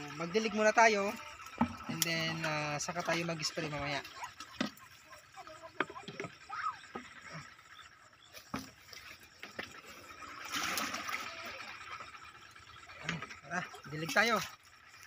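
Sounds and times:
water splashing and pouring: 8.5s - 12.3s, 13.0s - 15.0s.

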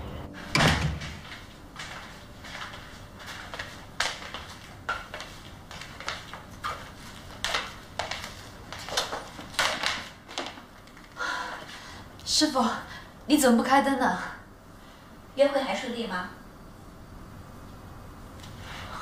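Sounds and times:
footsteps on wooden floor: 0.4s - 10.6s
door thudding shut: 0.5s - 1.2s.

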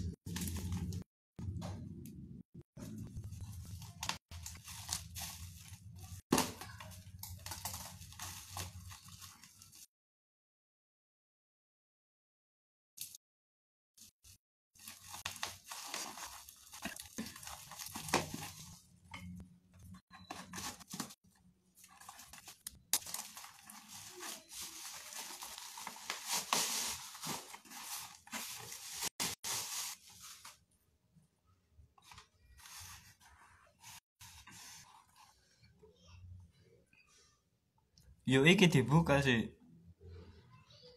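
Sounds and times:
bubble wrap tearing and rustling: 3.3s - 9.9s, 14.8s - 18.8s, 21.8s - 30.6s.

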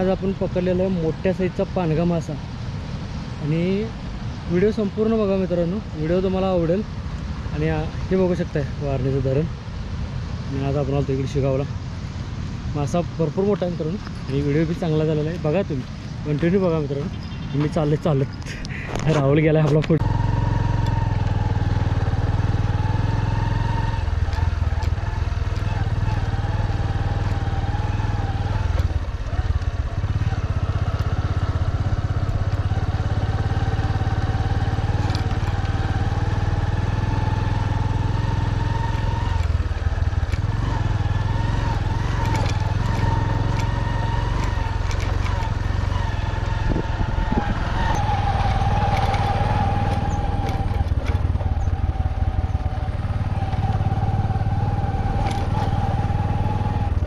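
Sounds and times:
motorcycle engine running: 19.6s - 57.0s.

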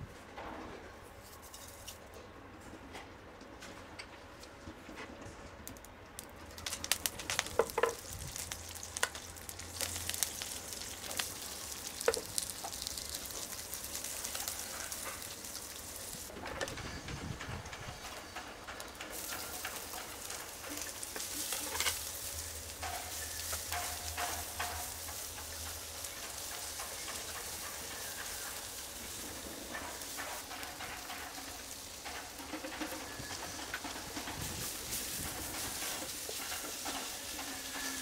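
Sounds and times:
vegetables sizzling in a frying pan: 6.6s - 16.3s, 17.9s - 38.0s.

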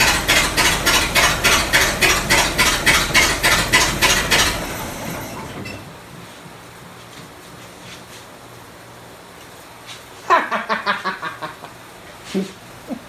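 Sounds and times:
old engine clattering: 0.0s - 5.8s.

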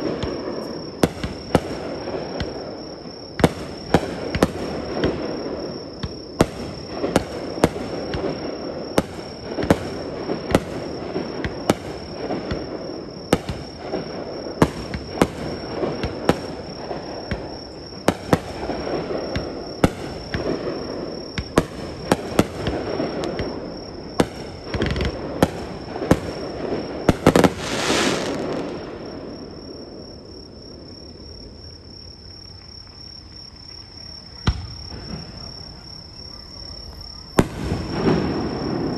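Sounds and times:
firework crackling: 6.4s - 29.8s
firework shells bursting: 24.2s - 28.9s.

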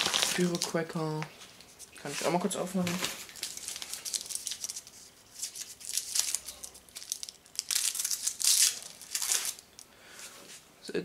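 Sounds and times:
wrapping crinkling and tearing: 0.0s - 9.8s.

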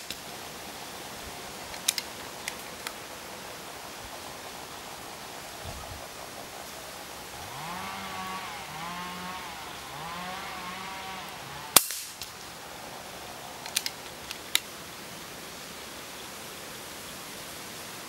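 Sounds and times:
small metallic clicks: 1.7s - 3.0s, 13.6s - 14.7s
air rifle shot: 11.8s - 12.3s.

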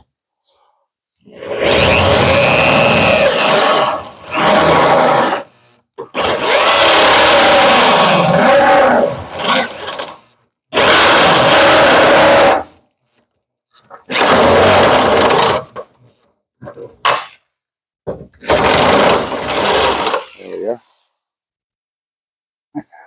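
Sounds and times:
electric drill boring through steel: 1.3s - 8.4s, 9.1s - 12.7s, 14.1s - 15.7s, 18.4s - 20.5s.

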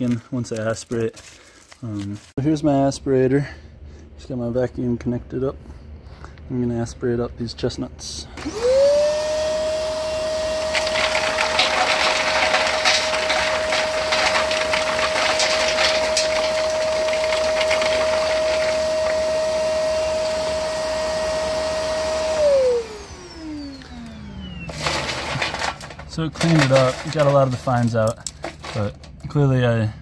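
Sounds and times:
vacuum whining: 8.4s - 27.2s
nuts clattering down baffles: 10.6s - 19.5s, 24.7s - 29.4s.

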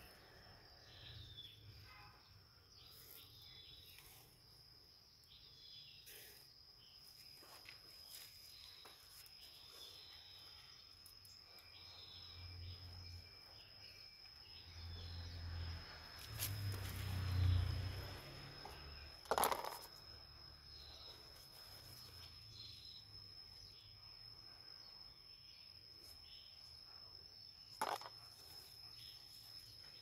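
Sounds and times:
insect trilling: 2.7s - 30.0s
plastic plant pots handled: 19.2s - 20.0s, 27.8s - 28.6s.

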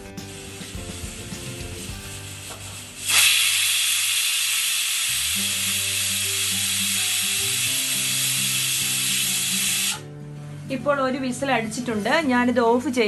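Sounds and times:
background music: 0.0s - 3.2s, 5.2s - 13.0s
pressure cooker whistling: 0.0s - 10.0s.

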